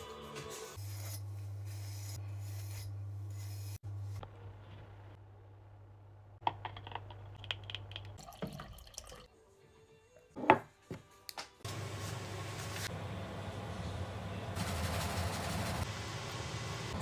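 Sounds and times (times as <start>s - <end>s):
water pouring into a glass: 8.2s - 9.3s.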